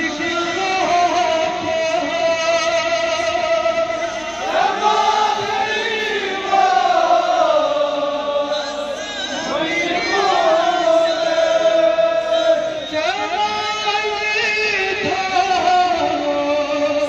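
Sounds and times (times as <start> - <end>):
men chanting together: 4.4 - 12.9.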